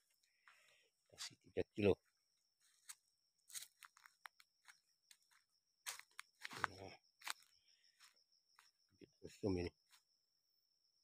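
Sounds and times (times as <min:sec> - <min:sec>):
footsteps crunching on dry leaves: 0:02.6 - 0:08.7.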